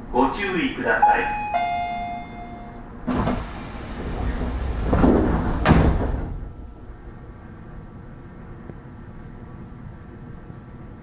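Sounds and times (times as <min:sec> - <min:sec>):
low steady train hum: 0:00.0 - 0:11.0
door warning tone: 0:01.0 - 0:03.5
train doors hissing shut: 0:03.0 - 0:06.5
door closing thud: 0:03.1 - 0:06.5.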